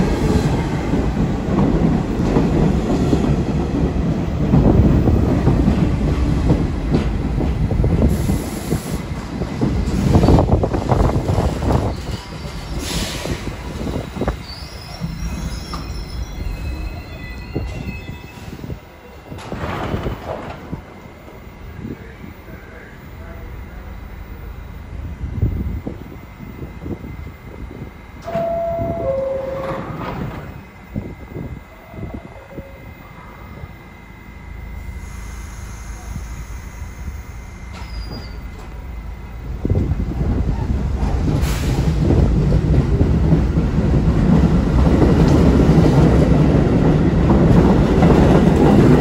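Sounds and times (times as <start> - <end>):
train wheels rumbling on rail: 0.0 - 49.0
high-pitched wheel squeal: 14.4 - 18.6, 35.2 - 38.5.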